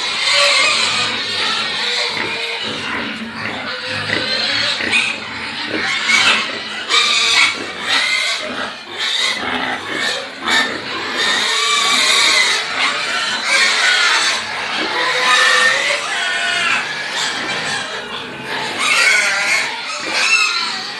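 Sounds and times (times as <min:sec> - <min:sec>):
piglets squealing and grunting: 0:00.0 - 0:20.9.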